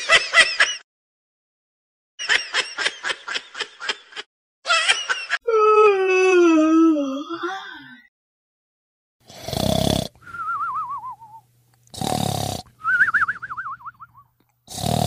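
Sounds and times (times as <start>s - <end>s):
high-pitched cartoonish laughing: 2.2s - 5.5s.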